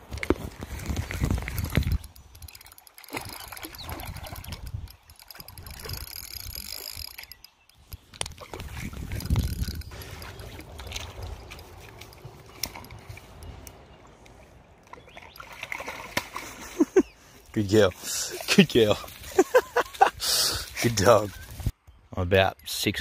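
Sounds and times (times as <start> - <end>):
dog splashing through water: 14.9 - 16.6.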